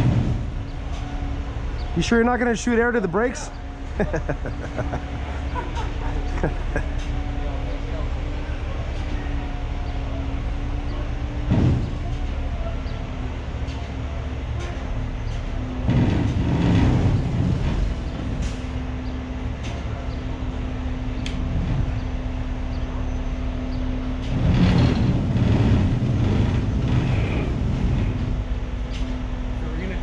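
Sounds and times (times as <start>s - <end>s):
diesel engine running: 0.0s - 30.0s
sharp clicks: 21.2s - 21.4s.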